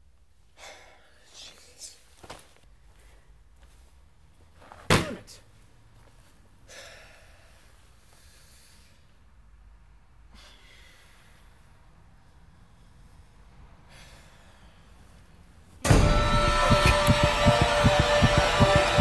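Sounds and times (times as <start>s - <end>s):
breathy rush: 10.3s - 19.0s
loud slam-like hit: 15.8s - 19.0s
short falling tone: 15.9s - 19.0s.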